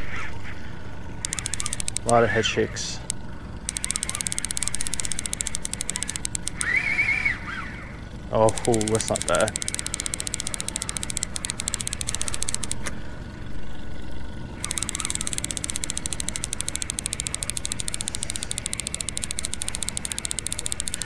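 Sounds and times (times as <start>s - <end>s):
fishing reel clicking: 1.2s - 2.4s, 3.0s - 6.8s, 8.4s - 12.9s, 14.6s - 21.0s.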